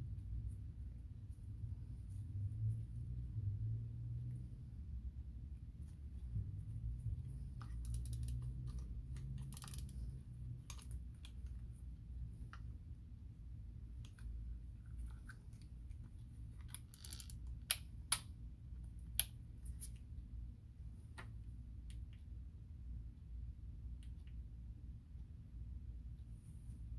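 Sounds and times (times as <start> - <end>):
fishing reel clicks and rattles: 7.8 - 8.8, 9.4 - 10.1, 16.7 - 17.4.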